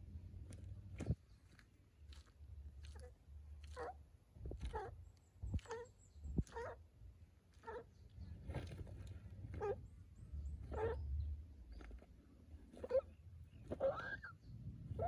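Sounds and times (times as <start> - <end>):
lizard gulping: 1.0 - 6.8.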